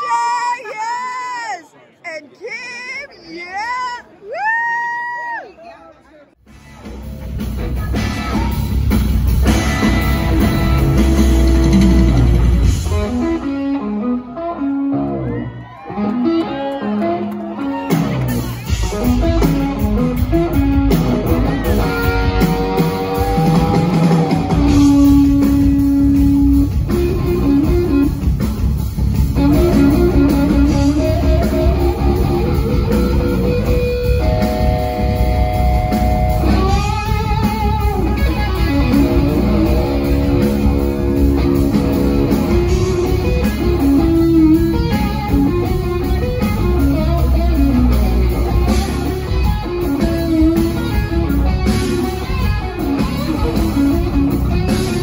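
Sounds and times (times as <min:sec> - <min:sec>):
bass guitar: 0:06.4 - 0:55.0
drums: 0:06.4 - 0:55.0
lead electric guitar melody: 0:06.8 - 0:55.0.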